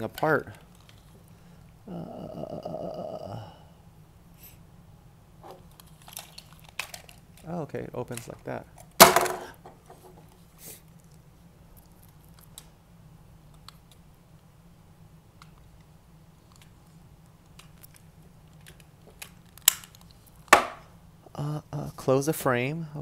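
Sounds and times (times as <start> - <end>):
toy parts clicking: 5.7 - 7.5, 17.5 - 20.1.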